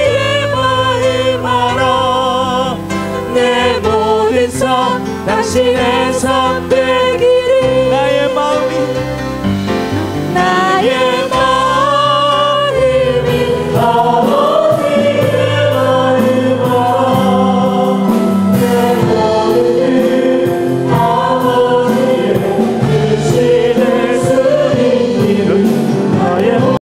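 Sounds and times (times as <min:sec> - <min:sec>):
band accompaniment: 0:00.0 - 0:26.8
choir singing gospel song: 0:00.0 - 0:26.8.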